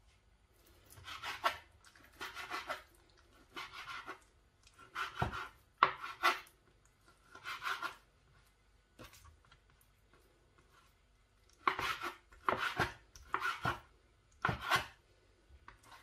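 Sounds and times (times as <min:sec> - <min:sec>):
knife slicing meat on cutting board: 0:01.0 - 0:02.8, 0:03.5 - 0:04.2, 0:04.8 - 0:06.5, 0:07.3 - 0:08.0, 0:11.6 - 0:13.8.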